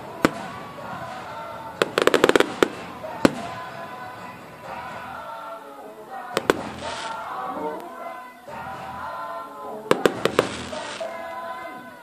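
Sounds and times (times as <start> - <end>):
firework bangs: 0.0 - 5.0, 6.3 - 7.5, 9.9 - 11.3
crackling firework pops: 0.2 - 0.6, 1.8 - 3.6, 6.4 - 7.2, 9.9 - 11.1.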